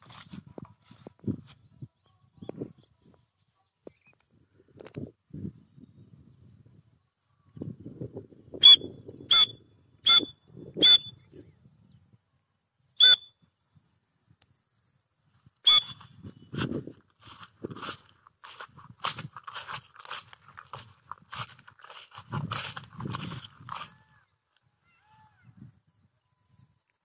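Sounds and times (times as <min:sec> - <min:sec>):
bird whistled calls: 0:08.6 - 0:11.2, 0:13.0 - 0:13.3, 0:15.7 - 0:16.0
rustling in grass: 0:16.5 - 0:24.0.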